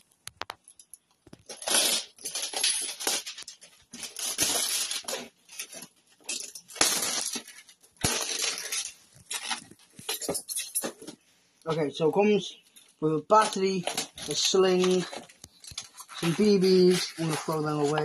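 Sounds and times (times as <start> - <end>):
plastic packaging crinkling: 1.2 - 11.2, 12.7 - 18.0
cardboard box rustling: 13.4 - 18.0.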